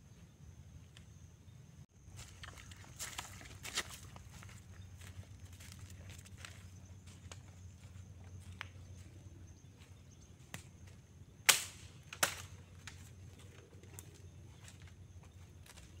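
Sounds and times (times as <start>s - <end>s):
dry branches snapping: 11.4s - 13.2s
faint twig cracks: 11.5s - 13.1s.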